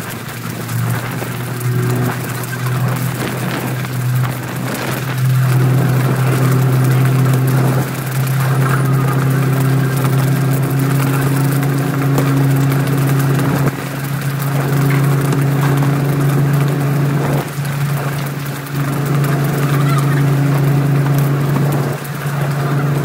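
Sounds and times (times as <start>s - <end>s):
boat diesel engine droning: 0.0s - 23.0s
sea and wake hissing: 0.0s - 23.0s.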